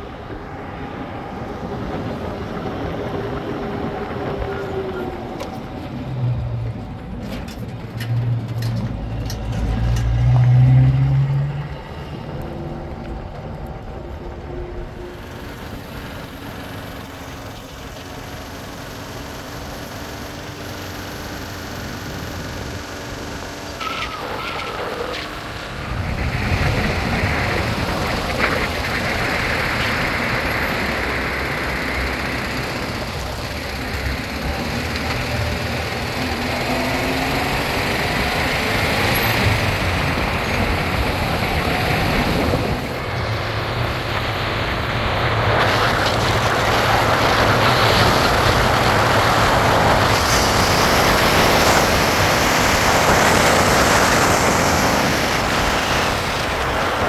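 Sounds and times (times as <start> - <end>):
low engine hum: 0.0 - 23.8
dense rushing noise: 24.3 - 57.0.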